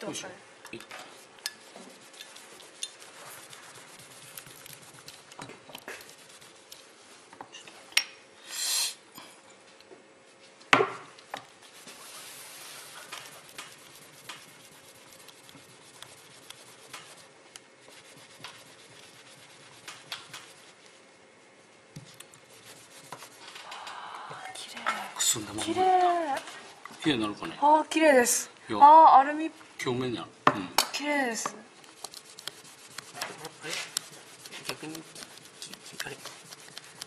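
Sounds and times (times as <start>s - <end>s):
small clicks and scrapes: 0.8s - 6.9s, 12.6s - 20.7s, 31.8s - 37.0s
cloth rubbing metal: 1.5s - 6.9s, 11.6s - 21.3s, 22.3s - 23.6s, 31.8s - 37.0s
brief hiss: 8.4s - 9.0s.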